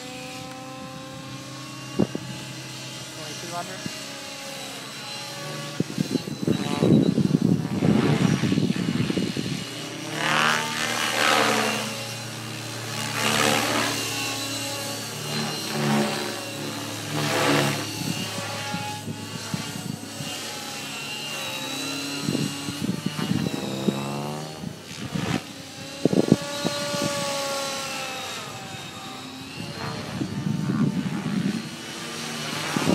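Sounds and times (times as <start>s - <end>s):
model helicopter rotor hum: 0.0s - 32.9s.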